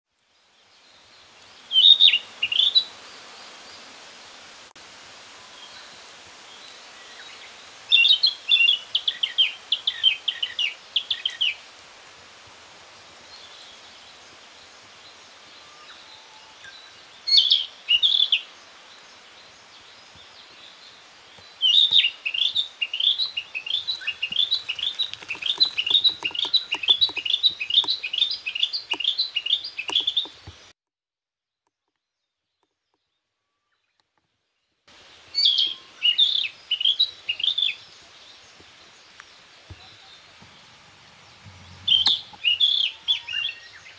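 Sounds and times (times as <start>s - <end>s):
bird singing whistled notes: 1.7s - 2.9s, 35.3s - 37.9s, 39.8s - 43.9s.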